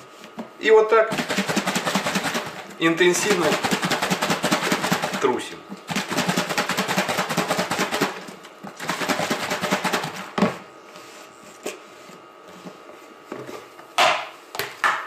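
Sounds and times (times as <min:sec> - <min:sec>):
eggs rattling in plastic container: 0:01.2 - 0:05.3.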